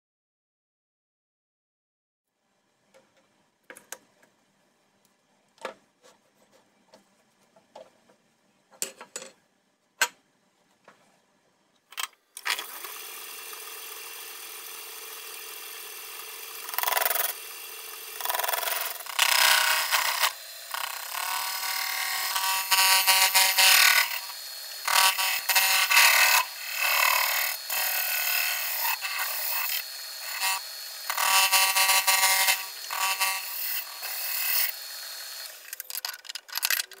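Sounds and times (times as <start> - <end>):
parts clicking and knocking: 6.9 - 9.4, 35.6 - 37.0.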